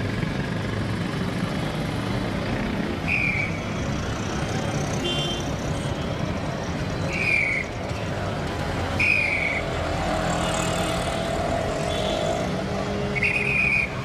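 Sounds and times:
road traffic: 0:00.0 - 0:14.0
whistle blasts: 0:03.0 - 0:03.6, 0:07.1 - 0:07.7, 0:09.0 - 0:09.7, 0:13.2 - 0:14.0.

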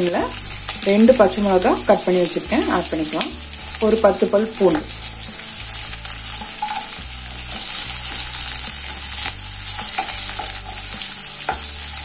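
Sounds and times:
food sizzling in oil: 0:00.0 - 0:12.0
spatula scraping pan: 0:04.7 - 0:12.0.

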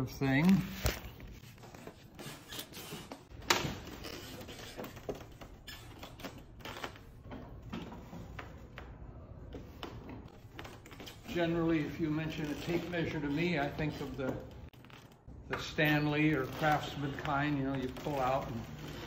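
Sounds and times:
printing press clicks and creaks: 0:09.5 - 0:19.0.

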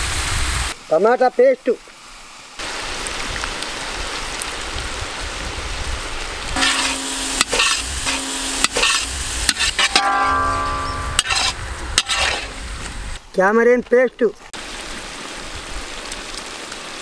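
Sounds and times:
food sizzling in a wok: 0:00.0 - 0:01.0, 0:01.8 - 0:13.2
metal spatula scraping wok: 0:06.6 - 0:12.6.

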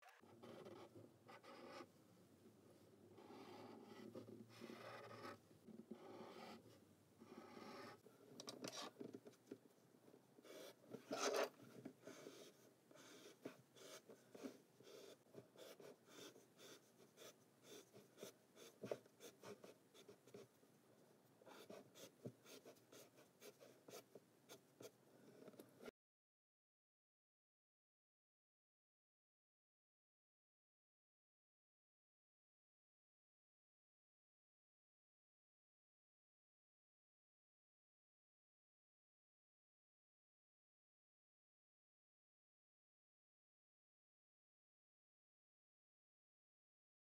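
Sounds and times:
pen drawing on paper: 0:00.0 - 0:01.9, 0:03.1 - 0:08.0, 0:08.6 - 0:09.7, 0:10.4 - 0:20.6, 0:21.4 - 0:25.9.

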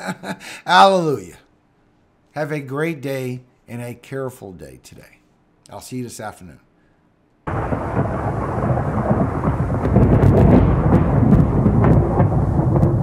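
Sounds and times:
rain: 0:07.5 - 0:13.0
rolling thunder: 0:07.5 - 0:13.0
sharp thunder crackles: 0:07.5 - 0:13.0.

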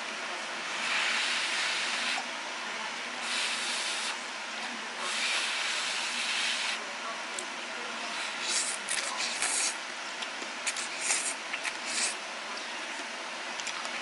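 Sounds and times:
person slurping noodles: 0:08.3 - 0:09.8, 0:10.6 - 0:12.2.

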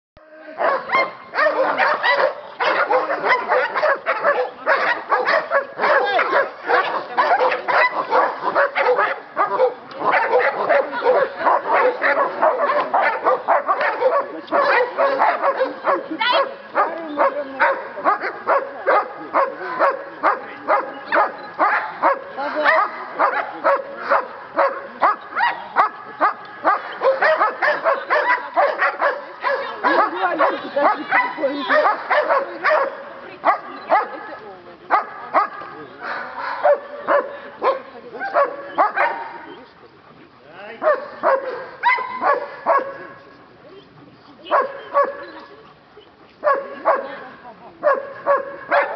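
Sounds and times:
dog barking rapidly: 0:00.6 - 0:25.9, 0:47.8 - 0:48.9.

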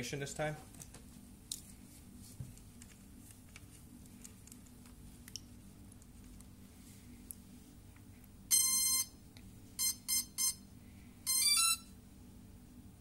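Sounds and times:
drone startup beeps: 0:08.5 - 0:09.2, 0:09.8 - 0:10.6, 0:11.3 - 0:11.9.

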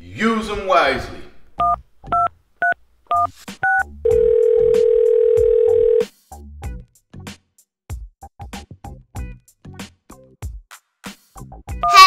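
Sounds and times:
telephone ringing tone: 0:04.0 - 0:06.0.

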